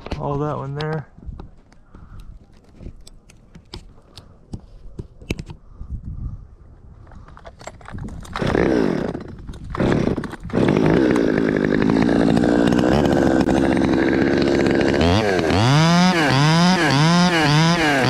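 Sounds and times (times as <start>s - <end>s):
chainsaw engine running: 8.4s - 18.0s.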